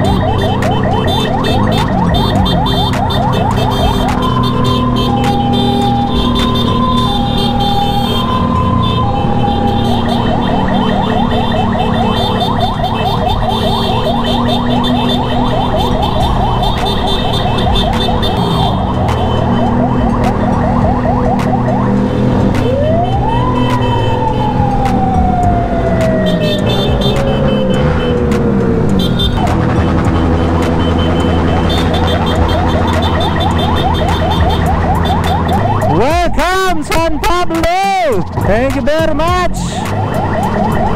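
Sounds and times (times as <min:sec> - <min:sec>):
motorcycle engines running: 0:00.0 - 0:36.4
ambulance siren: 0:00.0 - 0:40.9.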